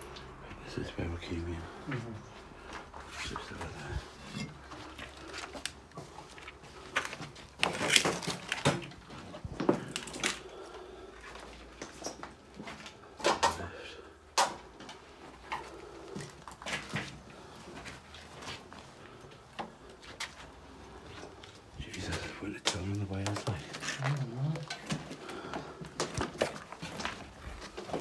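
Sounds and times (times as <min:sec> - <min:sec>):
footsteps on debris: 0:21.3 - 0:28.0.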